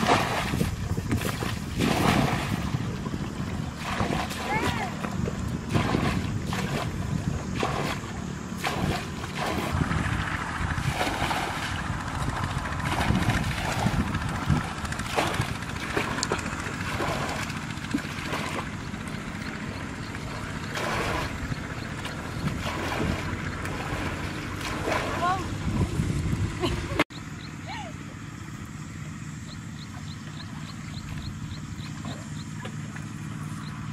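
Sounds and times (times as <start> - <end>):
buckets scooping and pouring water: 0.0 - 9.8, 10.8 - 19.3, 20.1 - 25.8.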